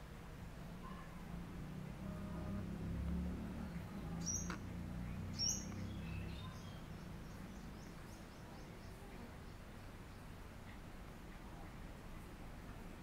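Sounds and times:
small birds chirping: 2.0 - 11.9.

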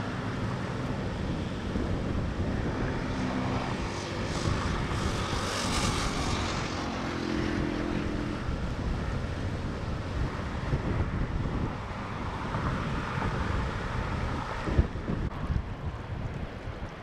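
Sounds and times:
river rushing: 0.0 - 4.2
wind buffeting microphone: 0.0 - 17.0.

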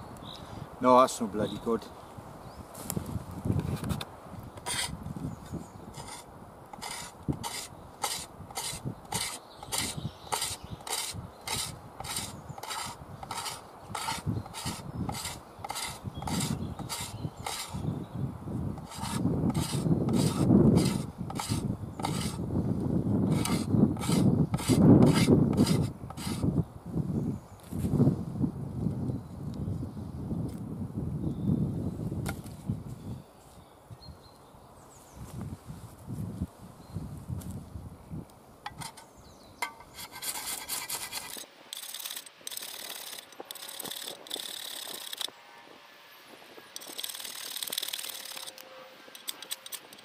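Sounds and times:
shovel blade scraping wood: 4.6 - 5.0, 5.9 - 17.9, 18.8 - 22.4, 23.3 - 26.5, 38.7 - 45.4, 46.8 - 50.0.

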